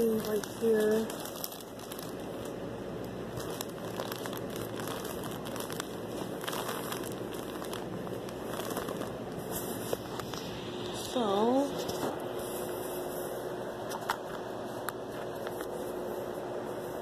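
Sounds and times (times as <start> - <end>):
plastic bag crinkling: 0.0 - 10.5.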